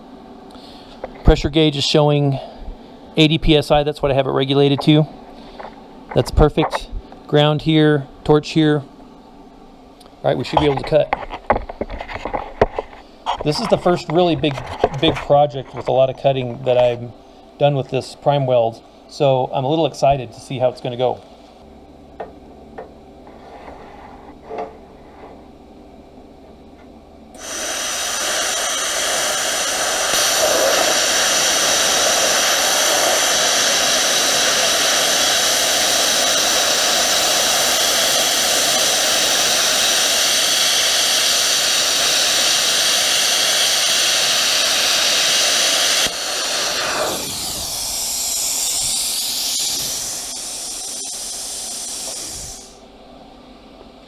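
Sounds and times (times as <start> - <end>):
plasma cutter arc hissing: 27.4 - 52.8
soft air hiss: 27.4 - 52.8.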